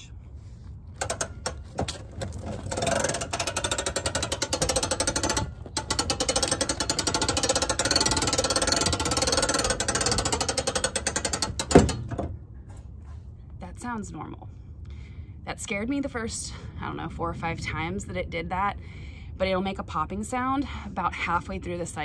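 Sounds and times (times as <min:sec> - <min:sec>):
hand crank gearbox clicking: 0:01.0 - 0:12.2.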